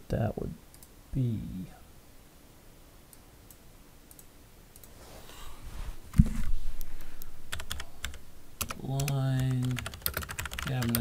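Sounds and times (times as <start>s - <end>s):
computer mouse clicks: 3.1s - 5.0s.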